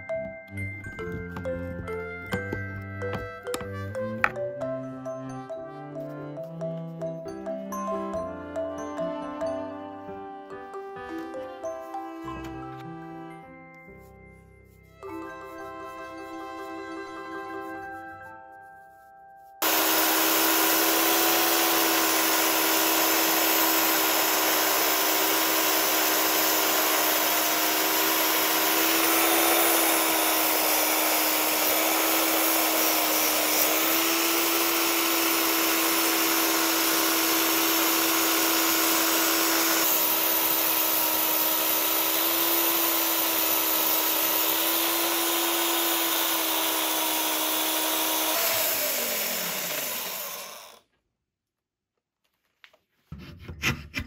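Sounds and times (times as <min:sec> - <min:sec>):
high-speed electric motor running: 0:19.6 - 0:50.8.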